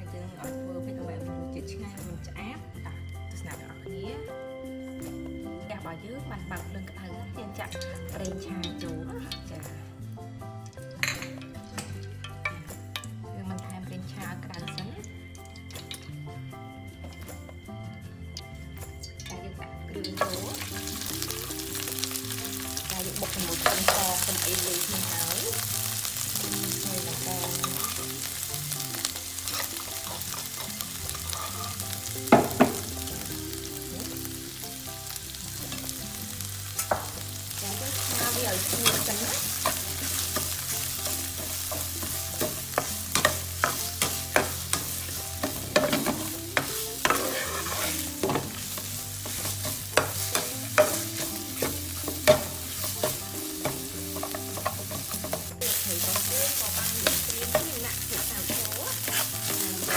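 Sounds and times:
spice paste sizzling in oil: 0:20.0 - 0:59.9
spatula tapping and scraping pan: 0:20.1 - 0:25.5, 0:29.1 - 0:33.0, 0:36.8 - 0:37.3, 0:37.9 - 0:59.9.

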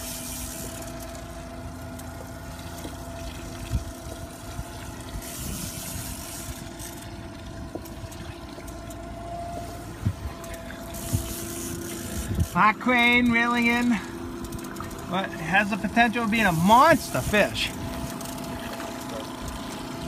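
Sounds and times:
outboard motor humming: 0:00.0 - 0:20.0.

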